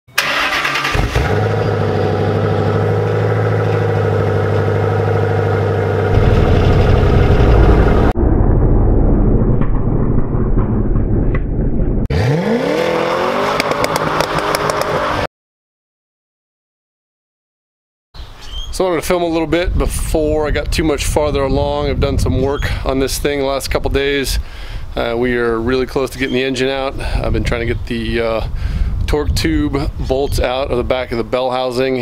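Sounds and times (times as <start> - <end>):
car engine revving: 0.2 - 8.2, 8.8 - 15.3.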